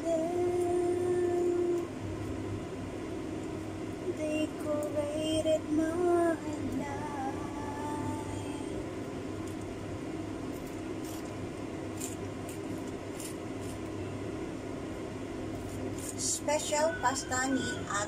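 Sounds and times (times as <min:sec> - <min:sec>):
steady low hum: 0:00.0 - 0:18.0
cheese grating on metal grater: 0:11.9 - 0:13.8.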